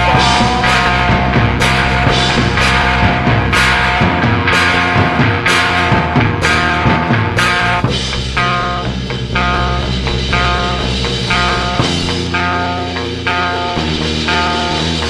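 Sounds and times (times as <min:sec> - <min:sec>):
repeated guitar figure: 0:00.0 - 0:15.0
rock band playing: 0:00.0 - 0:15.0.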